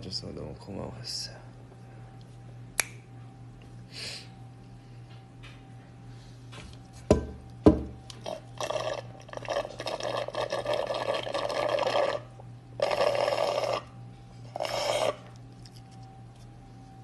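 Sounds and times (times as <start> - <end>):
person slurping a drink: 8.2 - 13.9, 14.5 - 15.3.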